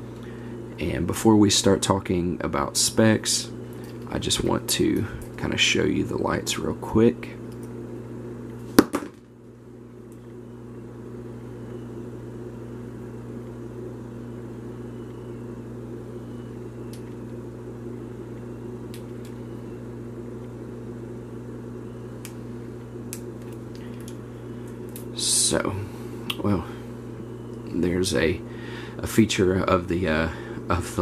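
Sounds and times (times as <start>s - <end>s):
low machine hum: 0.0s - 31.0s.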